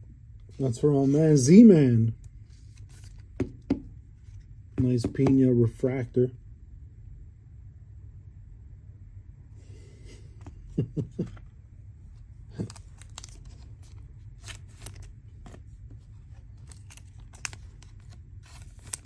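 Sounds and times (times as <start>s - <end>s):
low steady hum: 0.0s - 19.0s
cards and packaging crinkling: 2.4s - 3.3s, 12.5s - 19.0s.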